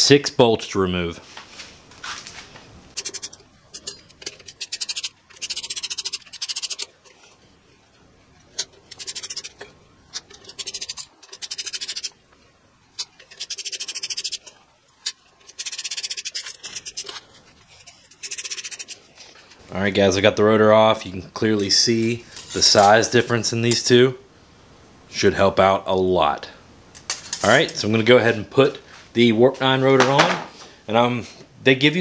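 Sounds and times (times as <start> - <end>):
ratchet clicking: 3.0 - 6.9, 8.5 - 12.2, 13.0 - 17.2, 18.1 - 19.0.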